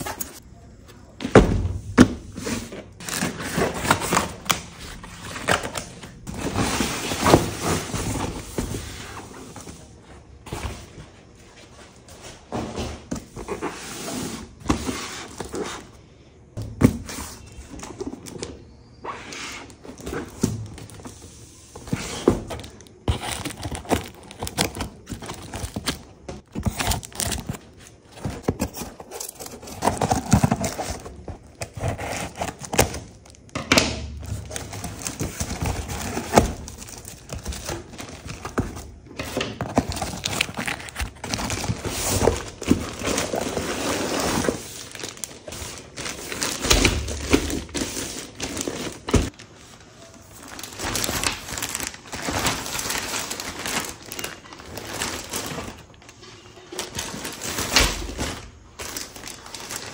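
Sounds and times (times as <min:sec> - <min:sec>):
packaging crinkling and rustling: 0:19.6 - 0:33.6, 0:34.2 - 0:59.9.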